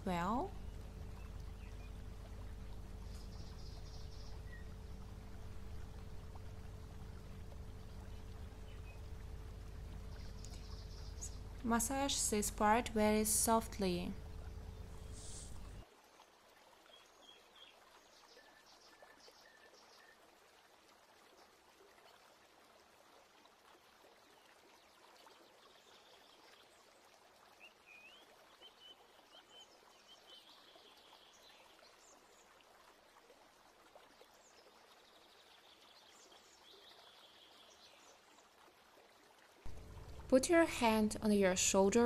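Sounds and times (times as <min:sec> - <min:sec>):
faint outdoor hiss: 0:00.0 - 0:42.0
faint bird chirps: 0:00.1 - 0:06.4, 0:07.5 - 0:11.8, 0:13.6 - 0:15.8.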